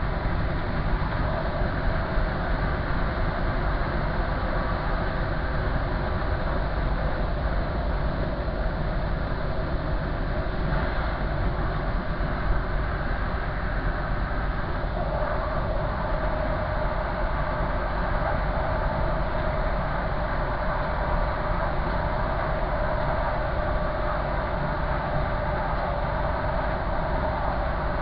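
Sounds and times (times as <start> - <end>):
train wheels rumbling on rails: 0.0 - 28.0.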